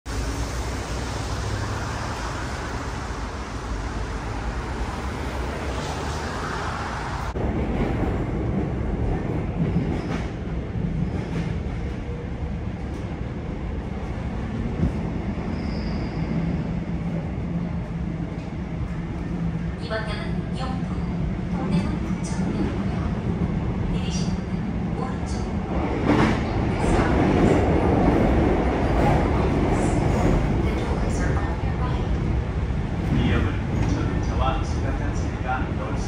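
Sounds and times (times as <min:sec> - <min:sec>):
outdoor street noise: 0:00.1 - 0:19.8
subway train wheels rumbling: 0:00.1 - 0:36.0
train hum: 0:00.1 - 0:36.0.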